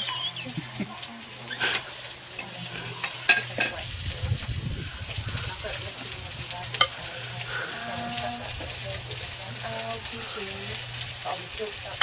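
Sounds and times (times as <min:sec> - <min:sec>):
food sizzling on hotplate: 0:00.0 - 0:12.0
low rumble: 0:03.8 - 0:09.3.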